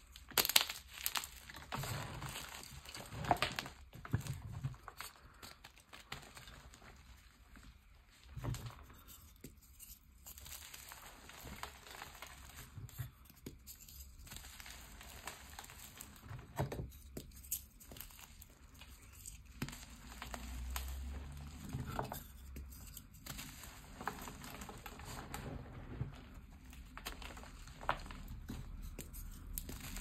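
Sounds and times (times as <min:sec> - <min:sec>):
hands crushing chalk: 0:00.1 - 0:07.0, 0:08.6 - 0:30.0.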